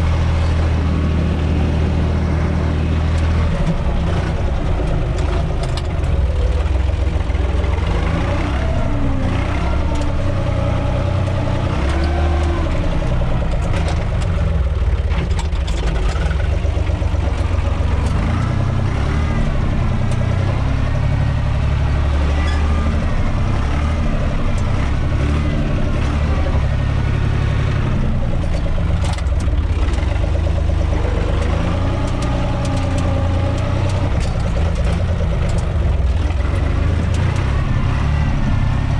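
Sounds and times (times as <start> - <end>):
tractor diesel engine running: 0.0 - 38.9
knocks and rattles: 3.0 - 38.4.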